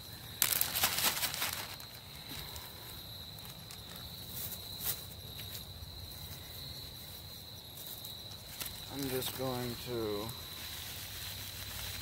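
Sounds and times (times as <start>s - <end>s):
plastic bag crinkling: 0.3s - 2.5s.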